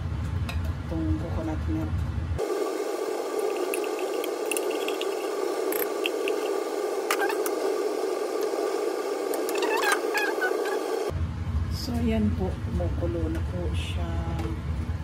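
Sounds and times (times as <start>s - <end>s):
pot boiling with small pops: 3.3s - 7.6s.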